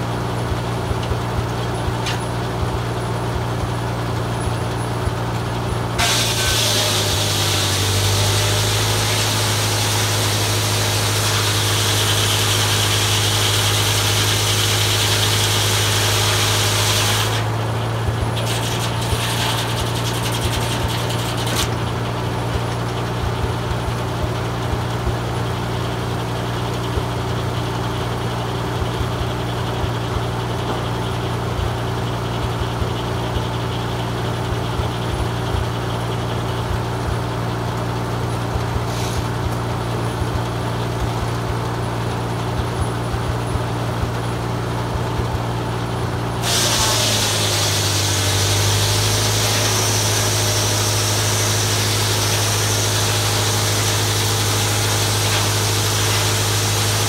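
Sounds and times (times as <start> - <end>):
tractor engine running: 0.0 - 57.0
circular saw ripping log: 6.0 - 17.6, 18.2 - 21.8, 38.8 - 39.4, 46.4 - 57.0.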